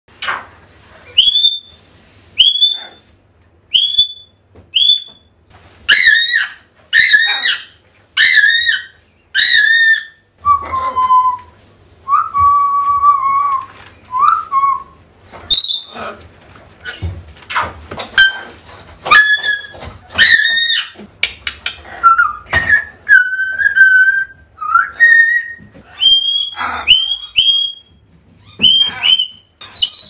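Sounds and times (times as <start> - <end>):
parrot whistling: 1.1 - 1.8, 2.4 - 3.0, 3.7 - 5.2, 5.9 - 15.9, 22.0 - 27.9.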